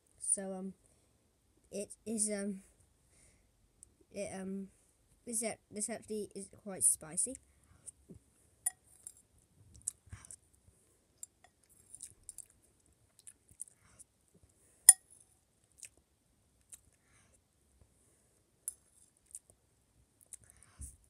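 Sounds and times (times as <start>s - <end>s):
chewing mouth sounds: 11.2s - 13.8s, 15.7s - 16.0s, 16.6s - 17.0s, 18.7s - 19.6s, 20.2s - 20.6s.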